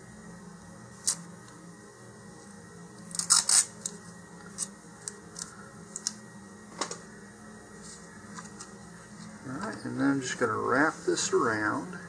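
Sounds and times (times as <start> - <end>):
masking tape ripping: 3.1 - 3.9.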